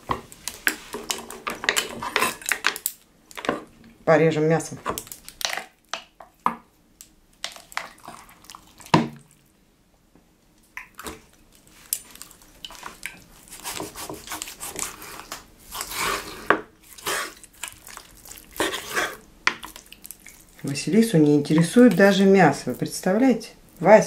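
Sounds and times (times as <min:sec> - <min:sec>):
knife slicing meat on board: 0:13.5 - 0:15.1.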